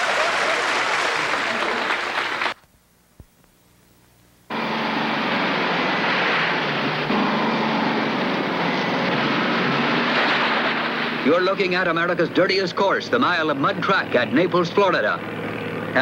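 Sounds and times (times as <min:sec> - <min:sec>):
studio audience applause: 0:00.0 - 0:02.6
swamp buggy engine running: 0:04.5 - 0:16.0.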